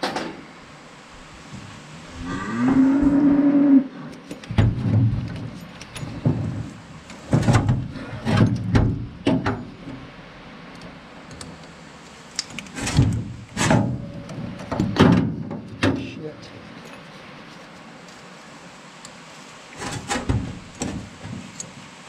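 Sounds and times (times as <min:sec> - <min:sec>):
metal parts clunking and scraping: 0:04.1 - 0:10.1, 0:12.4 - 0:16.1, 0:19.8 - 0:21.7.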